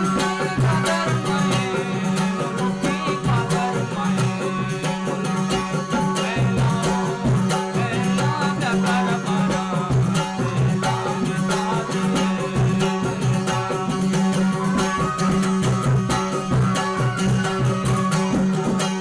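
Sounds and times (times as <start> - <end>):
bowed fiddle melody: 0.0 - 19.0.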